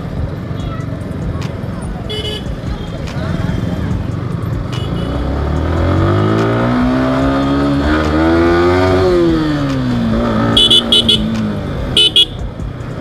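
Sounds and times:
motorcycle engine accelerating: 2.9 - 13.0.

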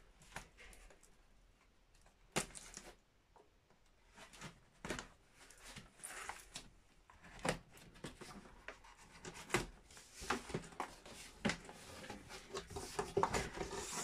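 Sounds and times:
cardboard rustling and scraping: 4.0 - 14.0.

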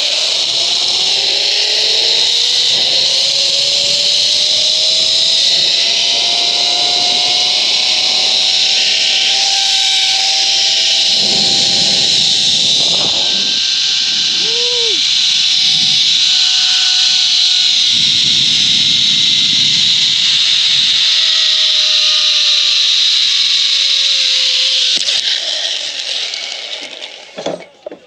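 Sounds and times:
zip-line trolley hissing on cable: 0.0 - 27.7.

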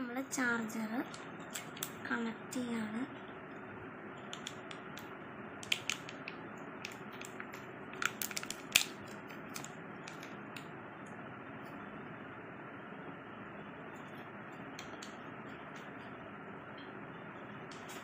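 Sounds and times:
plastic packaging crinkling: 5.6 - 10.4.

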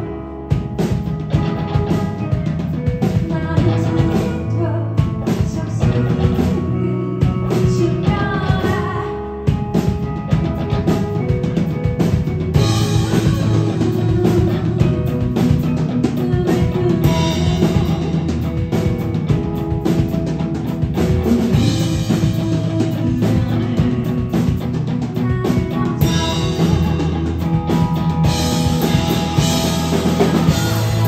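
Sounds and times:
drum kit: 0.0 - 31.0
electric guitar: 0.0 - 31.0
woman singing: 3.0 - 9.5, 12.6 - 18.3, 21.5 - 27.6.

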